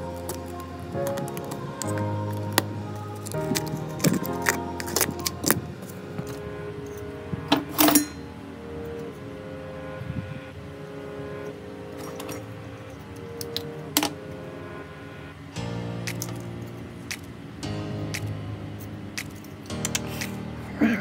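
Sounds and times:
soft background music: 0.0 - 21.0
phone parts clicking and clattering: 12.0 - 14.2.

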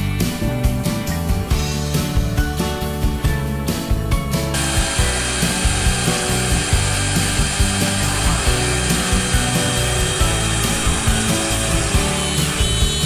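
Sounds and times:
background music with beat: 0.0 - 13.0
router spindle cutting with whine: 4.6 - 13.0.

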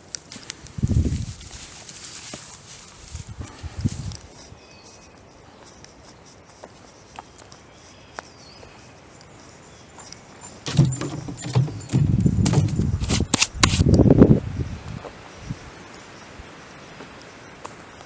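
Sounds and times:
footsteps crunching through dry leaves: 0.2 - 5.7.

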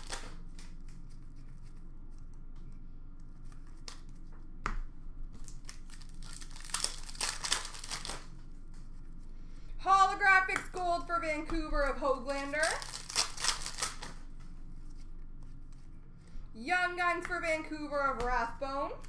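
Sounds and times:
wrappers crinkling and tearing: 0.0 - 1.8, 5.4 - 8.4, 12.2 - 14.3.

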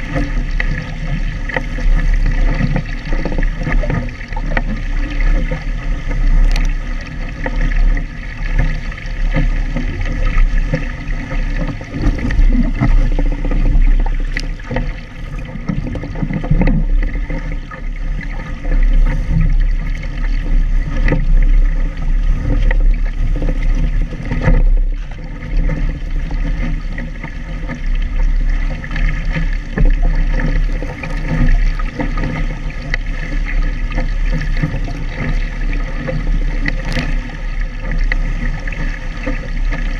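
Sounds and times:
water rushing along hull: 0.0 - 39.9
wind rumble on microphone: 0.0 - 39.9.

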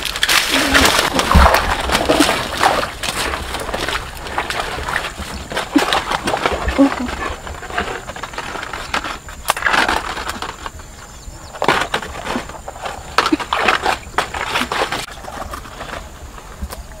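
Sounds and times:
plant stalks snapping: 0.0 - 7.2, 8.6 - 10.7
leaves rustling: 0.0 - 17.0.

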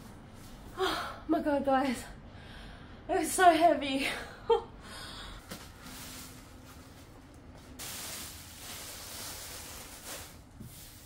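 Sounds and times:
bubble wrap crinkling: 5.6 - 11.0.

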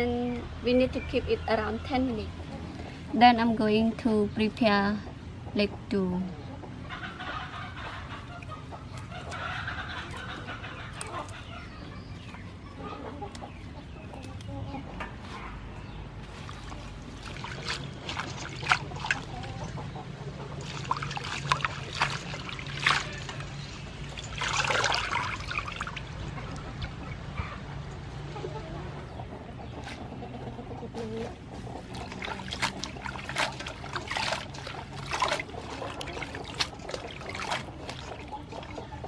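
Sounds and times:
chickens clucking: 4.6 - 39.0
lettuce leaves rustling: 8.2 - 12.7, 15.2 - 19.8, 20.6 - 26.0, 30.9 - 39.0
water splashing in metal bowl: 16.3 - 19.8, 20.6 - 26.2, 31.8 - 39.0.

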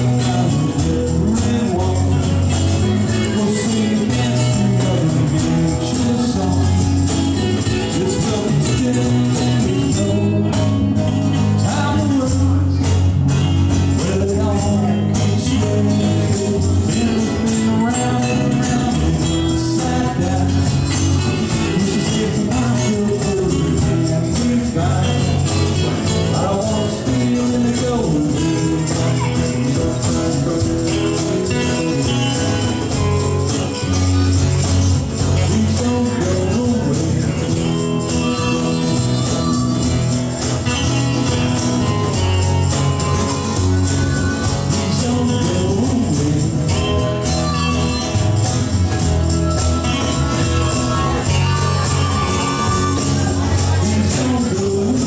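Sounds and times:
acoustic guitars: 0.0 - 55.0
electric bass: 0.0 - 55.0
jingling hand percussion: 0.0 - 55.0
harmonica playing: 37.5 - 45.2, 46.7 - 54.0.

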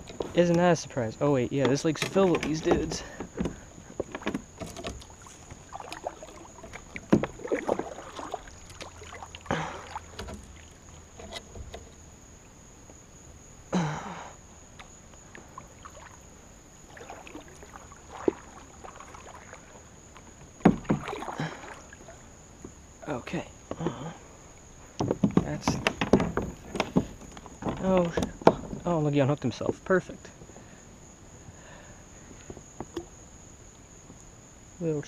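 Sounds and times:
paddle knocking on plastic hull: 1.6 - 9.3, 20.4 - 21.3, 24.9 - 28.9
paddle splashing in water: 2.0 - 12.8, 14.6 - 22.8, 23.7 - 28.9.

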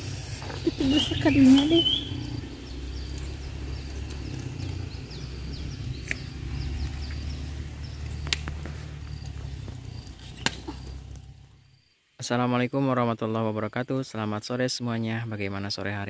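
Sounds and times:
low steady rumble: 0.0 - 11.9
small animals chirping: 0.4 - 11.7
plant stems snapping: 6.0 - 6.4, 8.2 - 8.8, 10.1 - 11.3.

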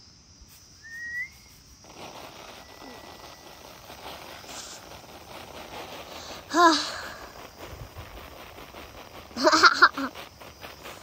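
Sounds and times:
grain pouring hiss: 0.4 - 11.0
short rising whistle: 0.8 - 1.6.

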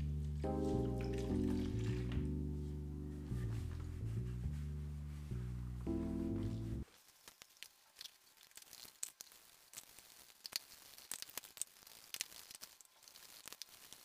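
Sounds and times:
small clicks and crinkles: 6.8 - 14.0.

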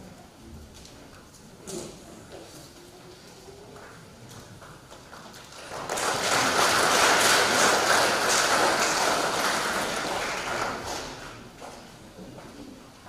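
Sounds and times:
congregation applauding: 5.4 - 11.8.

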